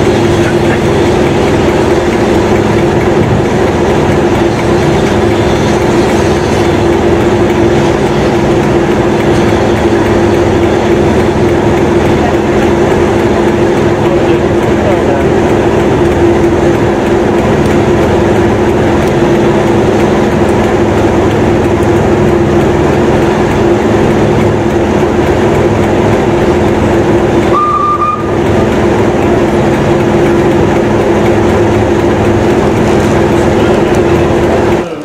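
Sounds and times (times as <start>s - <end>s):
train rolling past: 0.0s - 35.0s
short high-pitched rising tone: 27.5s - 28.4s.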